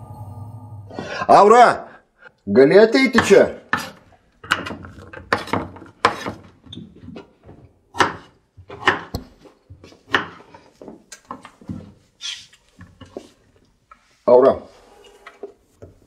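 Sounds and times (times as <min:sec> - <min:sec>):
knife chopping on wooden board: 0:03.2 - 0:06.5, 0:07.9 - 0:09.4, 0:10.0 - 0:10.5.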